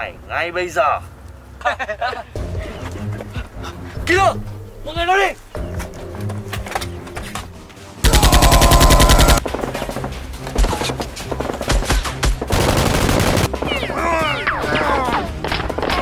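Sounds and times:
automatic gunfire bursts: 8.0 - 10.0, 12.5 - 13.6.

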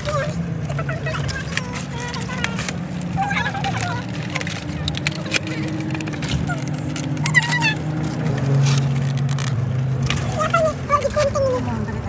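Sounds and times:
child speaking: 0.0 - 7.9, 10.2 - 12.0
car engine hum: 0.0 - 12.0
road noise inside car: 0.0 - 12.0.

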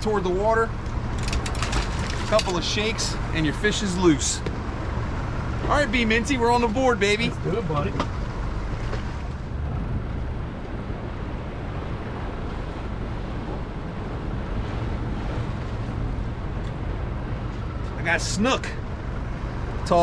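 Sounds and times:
wind noise on microphone: 9.0 - 17.1.

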